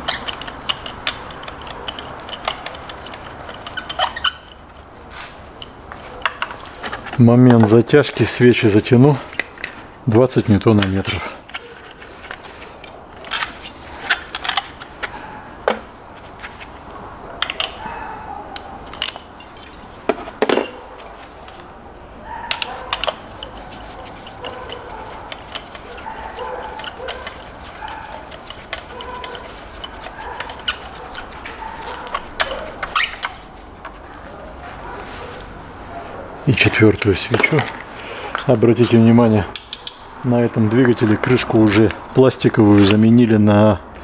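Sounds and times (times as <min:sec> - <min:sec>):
socket wrench metallic clicks: 0:39.6 - 0:40.0.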